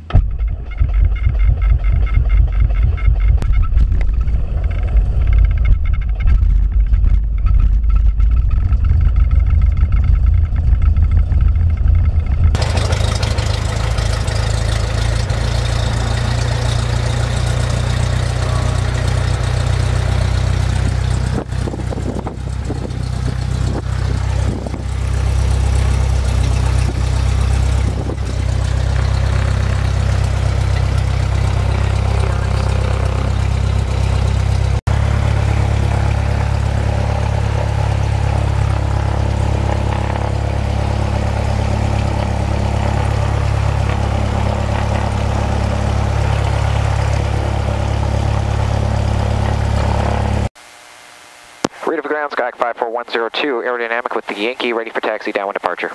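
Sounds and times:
aircraft engine idling: 0.0s - 50.5s.

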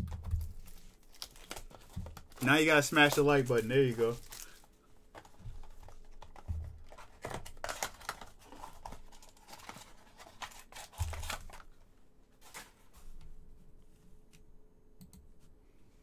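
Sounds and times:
plastic wrap crinkling: 0.0s - 11.8s.

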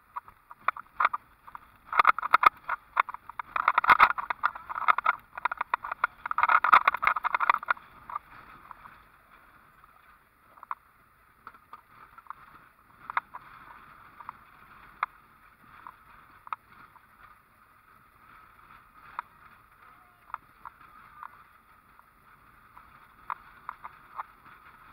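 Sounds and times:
vehicle driving on dirt road: 0.0s - 24.9s.

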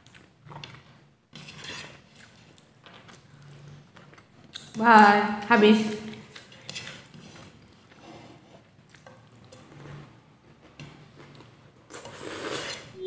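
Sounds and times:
soft chewing: 0.0s - 4.8s, 6.1s - 13.0s.

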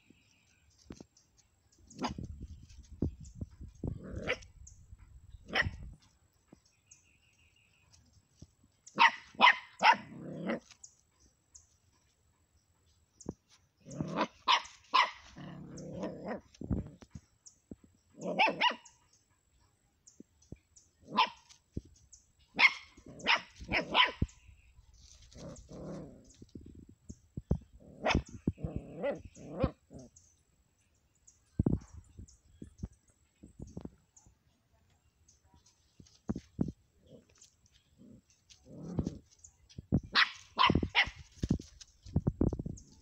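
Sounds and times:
puppy growling: 3.9s - 4.5s, 10.1s - 10.8s, 13.8s - 14.4s, 15.3s - 17.1s, 25.3s - 26.4s, 27.8s - 30.1s, 38.0s - 39.4s
puppy yapping: 22.6s - 24.3s, 40.1s - 41.2s.

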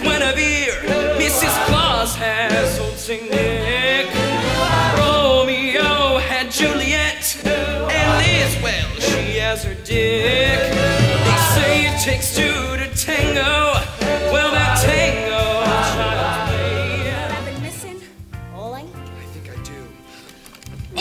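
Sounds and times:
band accompaniment with bass: 0.0s - 19.9s.

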